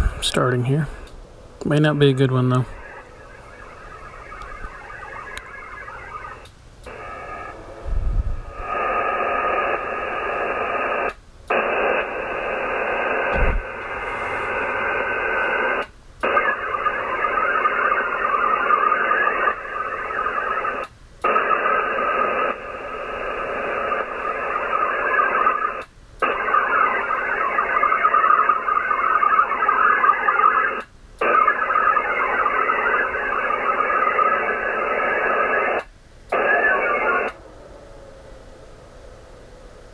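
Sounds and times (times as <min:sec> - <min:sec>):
digital modem signal tones: 0:01.8 - 0:07.6, 0:21.4 - 0:35.8.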